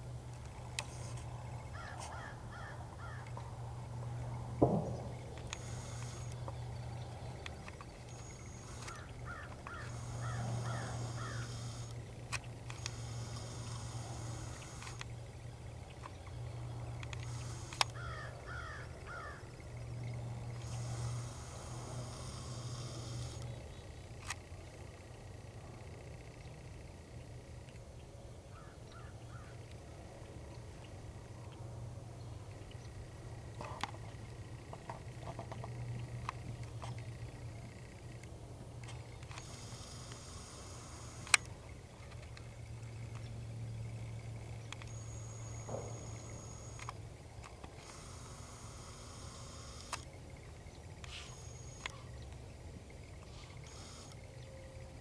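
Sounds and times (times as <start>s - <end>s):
steady low hum: 0.0s - 55.0s
distant bird calling: 0.5s - 31.6s, 38.8s - 55.0s
sharp clicks: 4.6s - 6.7s, 7.3s - 15.2s, 16.8s - 24.5s, 35.4s - 43.3s, 44.0s - 50.2s
scattered ticks: 5.3s - 27.9s, 32.6s - 54.5s.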